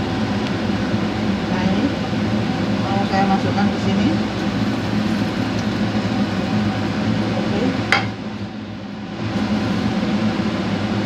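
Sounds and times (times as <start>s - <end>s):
low appliance hum: 0.0s - 11.0s
frying pan clacking on pot: 7.9s - 8.2s.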